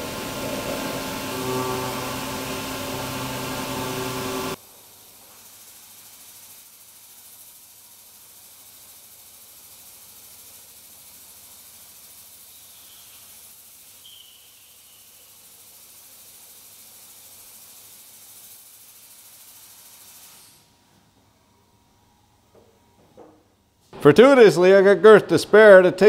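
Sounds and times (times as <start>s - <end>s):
high-pitched whine: 0.0s - 4.6s.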